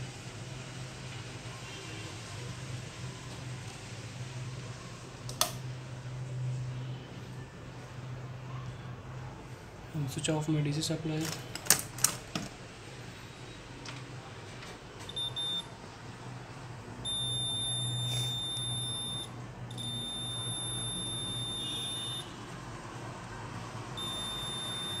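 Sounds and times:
multimeter beeping: 15.1 - 15.7, 17.0 - 22.3, 24.0 - 25.0.

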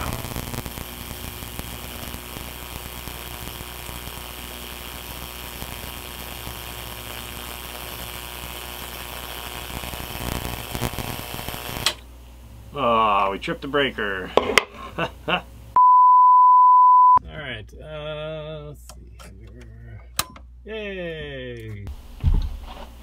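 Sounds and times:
electric arc buzzing and crackling: 0.0 - 12.1
mains hum: 0.0 - 15.8.

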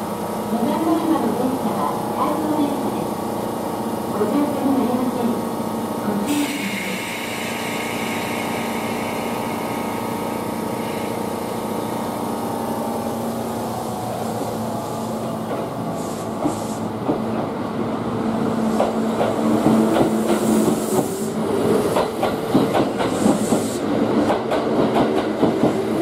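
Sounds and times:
electric train humming: 0.0 - 26.0.

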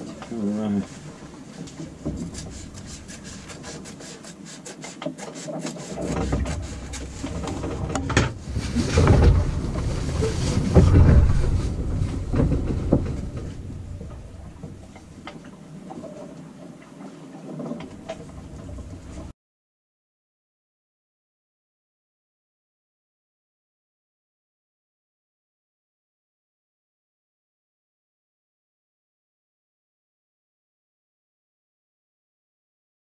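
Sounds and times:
low rumble: 6.9 - 15.7.

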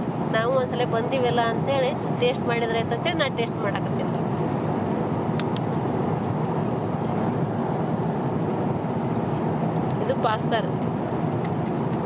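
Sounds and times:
airliner cabin noise: 0.0 - 12.0.

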